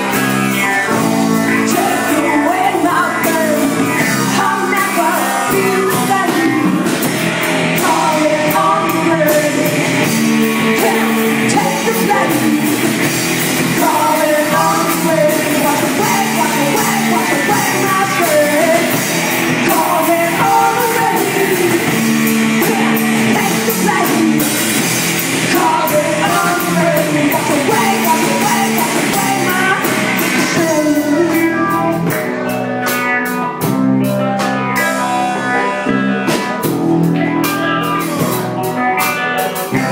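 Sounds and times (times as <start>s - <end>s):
woman singing: 0.0s - 7.0s, 7.7s - 13.0s, 13.6s - 32.6s
live rock band playing: 0.0s - 39.9s.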